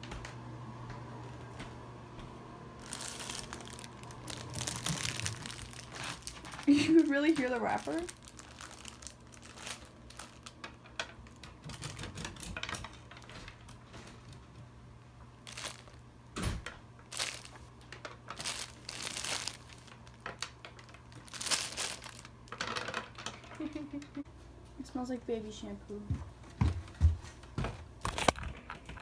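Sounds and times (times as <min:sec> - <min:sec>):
plastic wrapper crinkling: 0:02.8 - 0:12.3, 0:15.4 - 0:16.1, 0:17.0 - 0:23.3.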